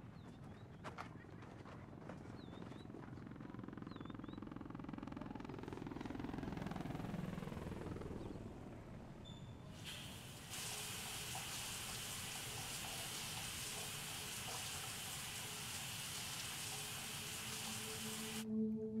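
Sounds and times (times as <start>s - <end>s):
shower spray hissing: 9.8s - 18.4s.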